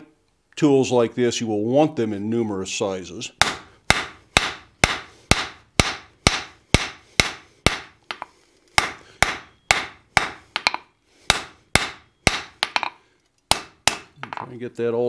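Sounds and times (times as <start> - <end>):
hammer striking steel on anvil: 3.4 - 14.4.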